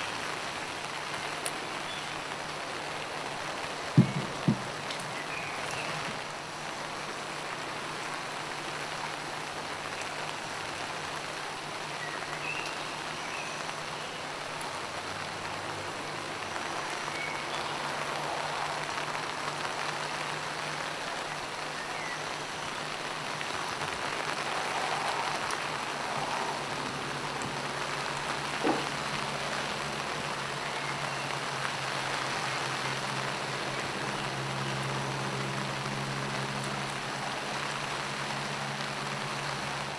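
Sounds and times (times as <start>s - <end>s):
steady rain falling: 0.0s - 39.9s
sharp tap: 4.0s - 4.7s, 28.6s - 28.9s.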